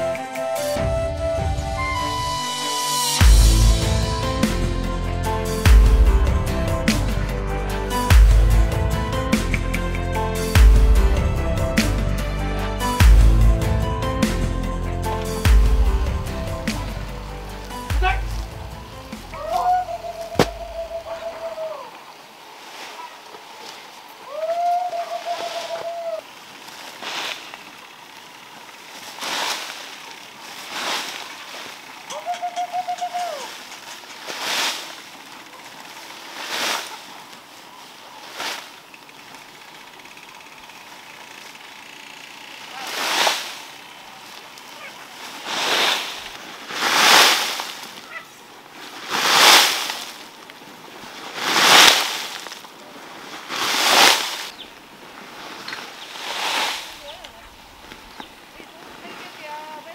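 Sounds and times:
short steady-pitched call: 0:19.4 - 0:21.9.

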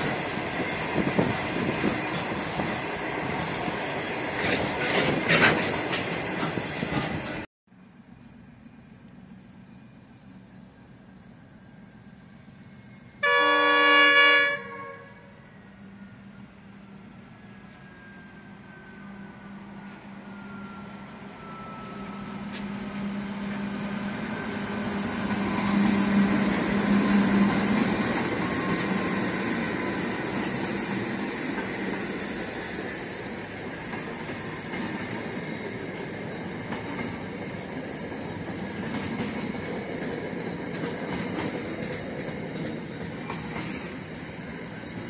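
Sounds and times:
locomotive engine hum: 0:00.0 - 0:45.0
wheels clicking over rails: 0:24.9 - 0:44.6.

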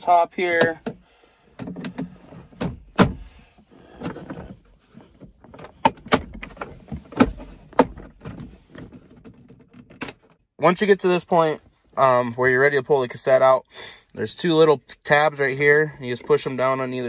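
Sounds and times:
plastic scraping and rattling: 0:03.8 - 0:10.4.

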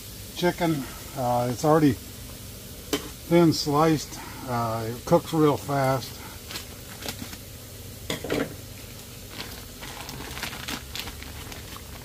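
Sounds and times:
food sizzling on griddle: 0:00.0 - 0:12.0
plastic bag crinkling: 0:05.9 - 0:07.5, 0:08.8 - 0:12.0.

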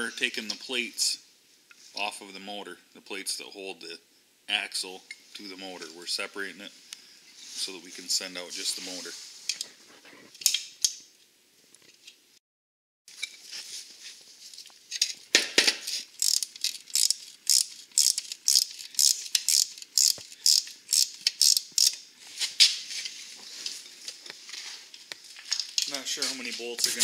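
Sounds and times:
wrench clicking on bolt: 0:16.2 - 0:22.0.

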